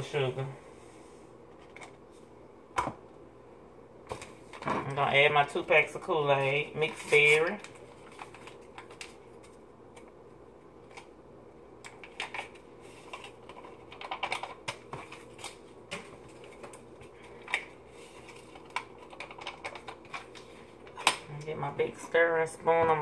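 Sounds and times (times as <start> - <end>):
drink-mix packets crinkling: 6.8 - 9.6, 11.9 - 21.0.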